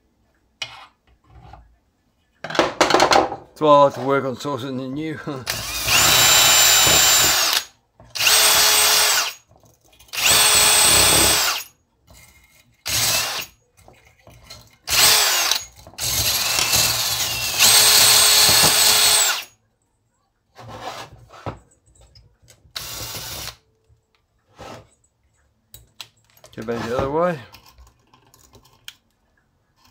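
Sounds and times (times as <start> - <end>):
drill spinning wire brush: 5.5 - 9.4, 10.1 - 11.7, 12.9 - 13.6, 14.9 - 19.5, 22.8 - 23.6.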